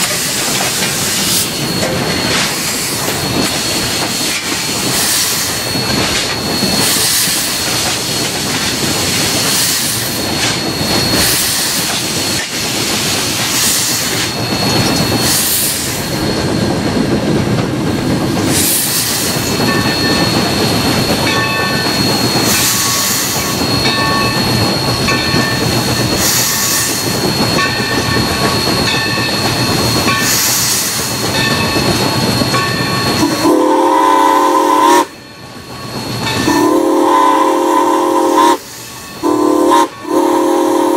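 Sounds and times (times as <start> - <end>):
steam locomotive running din: 0.0 - 40.9
locomotive whistle chord: 33.1 - 35.2, 36.4 - 40.9.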